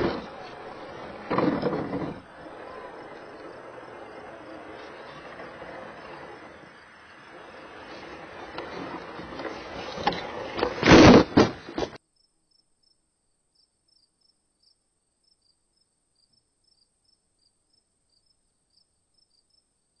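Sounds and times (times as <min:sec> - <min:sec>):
grass and leaves scraping camera: 0:00.0 - 0:12.0.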